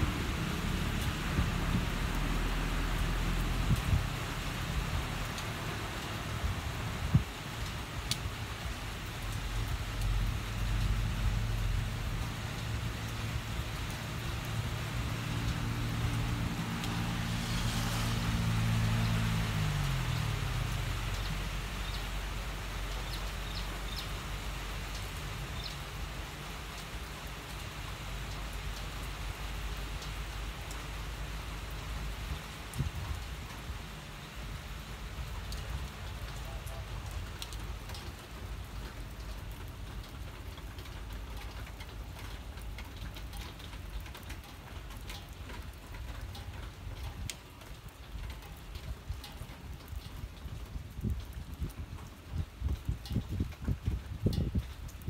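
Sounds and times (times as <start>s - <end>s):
rain hissing on wet ground: 0.0s - 55.0s
vehicle engine hum: 8.9s - 25.5s.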